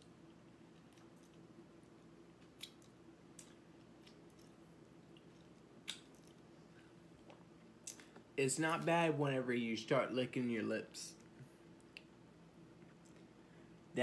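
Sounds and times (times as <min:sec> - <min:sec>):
person chewing with wet clicks: 0:00.0 - 0:08.3, 0:11.2 - 0:13.4
faint steady hum: 0:00.0 - 0:14.0
lip smacks: 0:02.4 - 0:06.5, 0:07.2 - 0:08.3, 0:11.2 - 0:12.2.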